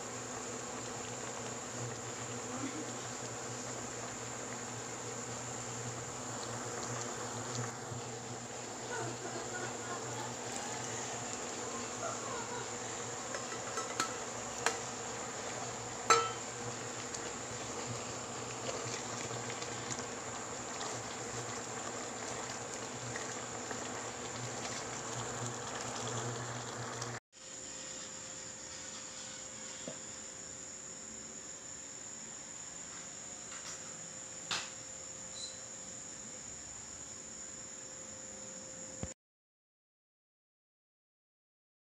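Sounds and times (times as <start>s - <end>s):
sauce simmering and bubbling: 0.0s - 27.2s.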